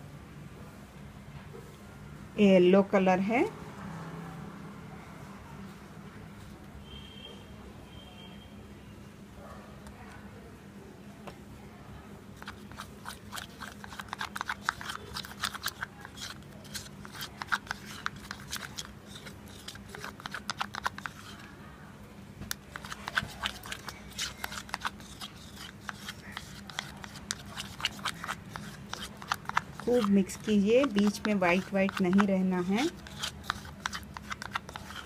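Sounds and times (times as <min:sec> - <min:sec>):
plastic spoon stirring paste in cup: 0:12.3 - 0:21.6, 0:22.5 - 0:35.0.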